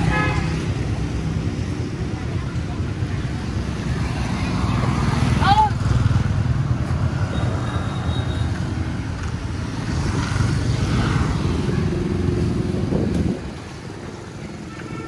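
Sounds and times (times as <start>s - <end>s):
motorbike engines rumbling: 0.0s - 15.0s
road noise: 0.0s - 15.0s.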